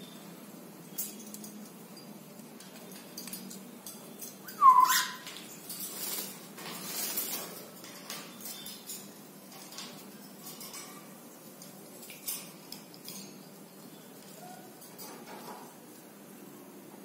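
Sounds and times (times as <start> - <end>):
parrot call: 4.5 - 5.2.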